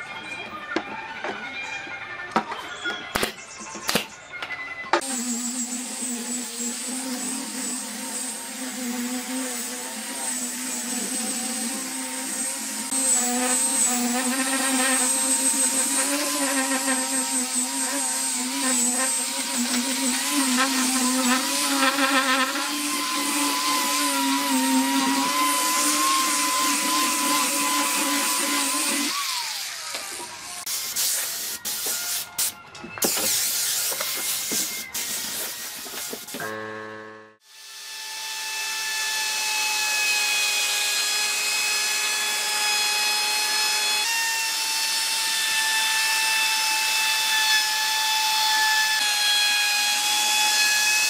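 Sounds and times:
angle grinder sanding wood: 5.0s - 32.0s.

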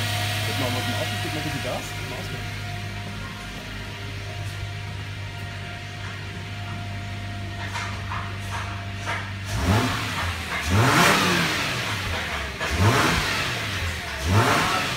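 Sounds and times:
car engine idling and revving: 0.0s - 14.9s.

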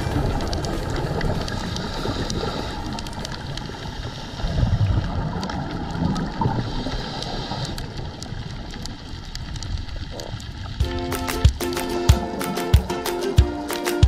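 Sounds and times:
bubbles gurgling: 0.0s - 10.8s
underwater rumbling: 0.0s - 13.0s
faint clicks: 0.2s - 10.8s.

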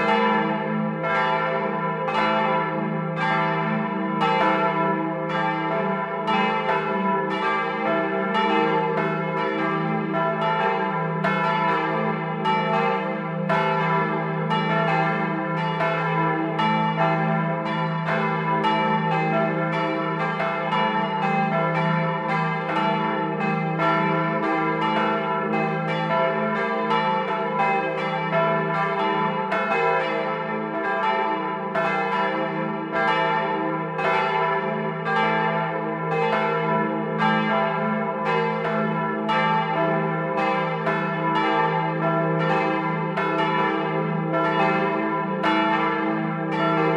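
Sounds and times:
hum of ringing bells: 0.0s - 46.9s.

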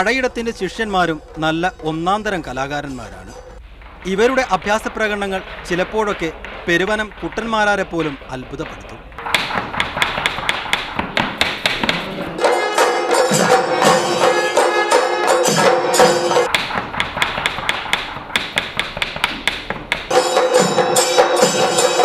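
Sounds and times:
drums beaten with sticks: 0.0s - 22.0s
knife chopping vegetables on board: 4.4s - 12.4s, 16.5s - 20.1s
ringing tones: 12.4s - 16.5s, 20.1s - 22.0s.

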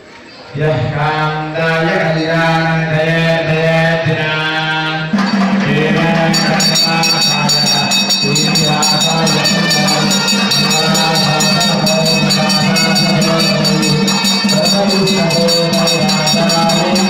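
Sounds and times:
people chanting: 0.5s - 17.0s
hand bell ringing: 5.2s - 17.0s.

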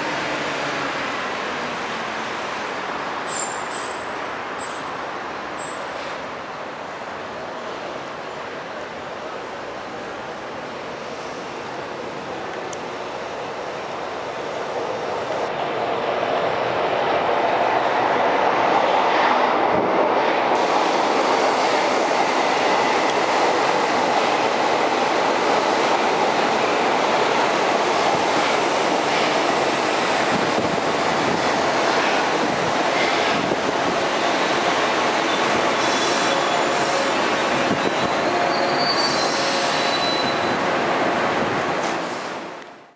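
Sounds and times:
train wheels rolling on rails: 0.0s - 42.9s
high wheel squeals: 3.3s - 4.8s, 37.8s - 40.6s.

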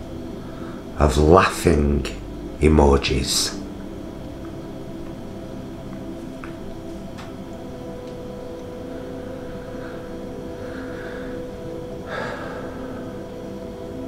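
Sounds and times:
soft music of held chords: 0.0s - 14.0s
person breathing: 0.4s - 1.0s, 8.8s - 13.9s.

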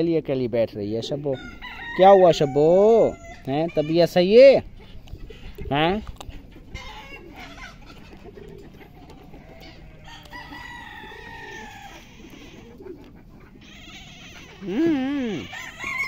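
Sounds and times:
chickens clucking: 0.9s - 16.0s
rooster crowing: 1.4s - 3.4s, 9.5s - 12.7s, 13.7s - 16.0s.

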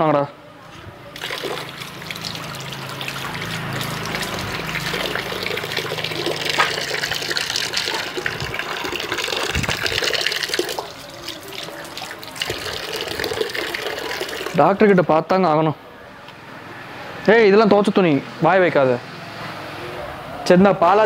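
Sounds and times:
water splashing into steel bucket: 1.1s - 14.6s.

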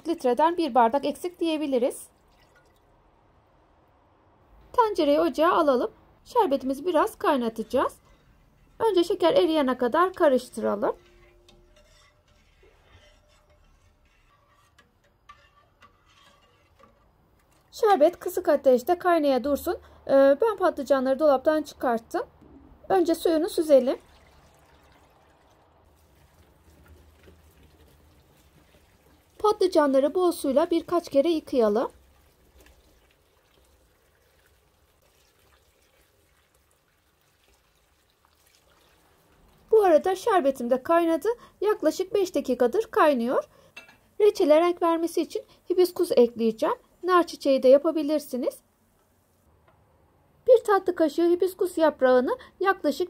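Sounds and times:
water splashing and dripping: 2.1s - 3.0s, 23.7s - 29.5s, 31.8s - 39.8s.

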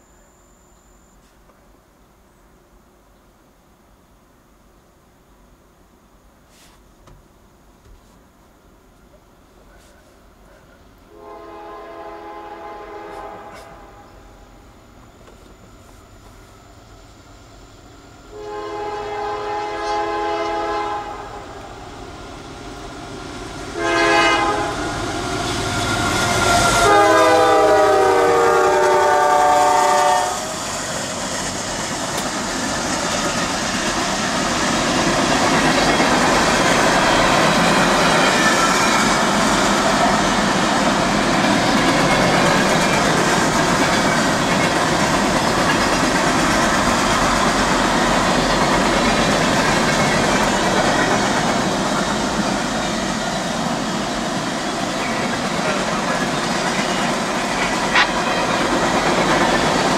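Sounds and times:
train rumbling past: 8.8s - 59.9s
train air horn blasts: 11.1s - 14.4s, 18.3s - 21.6s, 23.7s - 30.6s, 57.8s - 58.6s.

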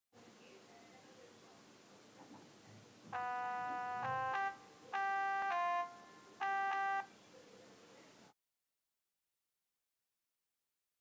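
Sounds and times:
electronic keyboard melody: 3.1s - 7.1s.

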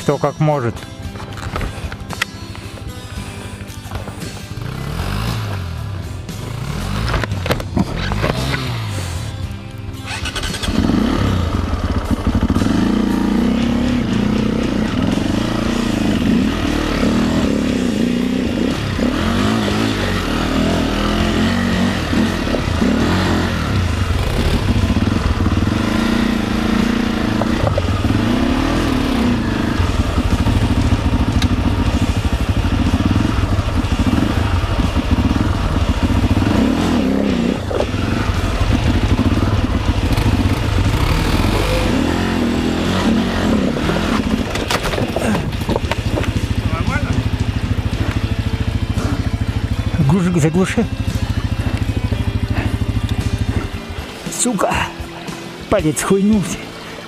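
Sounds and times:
motorcycle engine revving hard: 4.5s - 54.2s.

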